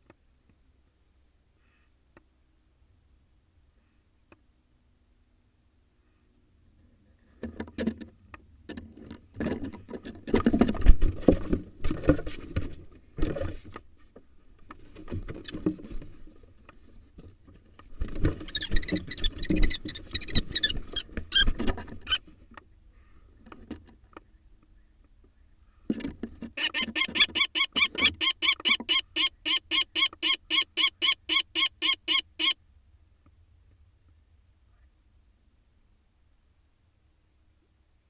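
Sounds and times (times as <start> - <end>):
claws scraping on wood: 18.1 - 22.2.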